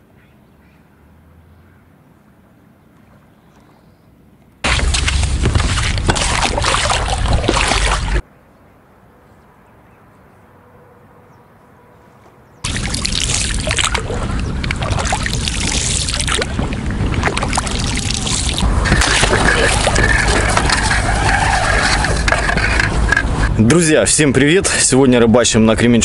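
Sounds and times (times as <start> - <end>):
water splashing around boat: 4.6 - 8.2, 12.6 - 23.7.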